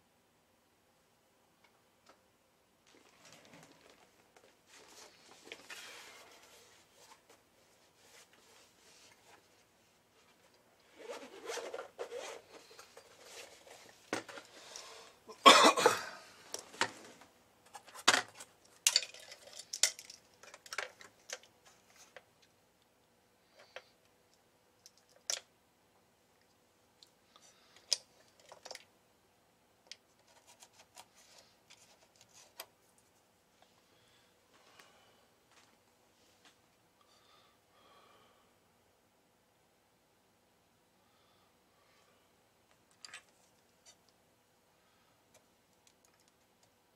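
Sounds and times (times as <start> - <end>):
rustling and clattering of small parts: 2.8 - 15.1, 16.4 - 22.6, 23.5 - 25.5, 26.4 - 28.9, 29.8 - 33.8, 42.7 - 44.2.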